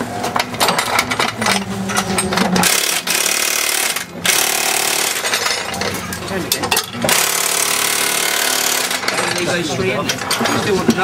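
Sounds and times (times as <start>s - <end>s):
tools clicking and clattering: 0.0s - 11.0s
impact wrench rattling: 0.4s - 11.0s.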